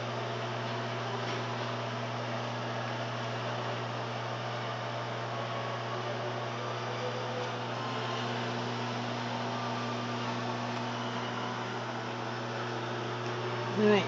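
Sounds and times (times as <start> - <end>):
microwave fan noise: 0.0 - 14.0
microwave oven humming: 0.0 - 14.0.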